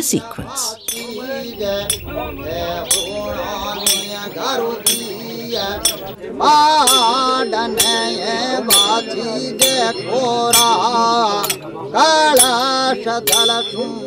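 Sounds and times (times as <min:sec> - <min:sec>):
sharp metallic clink: 0:00.9 - 0:06.2
louder voice singing: 0:01.0 - 0:06.2.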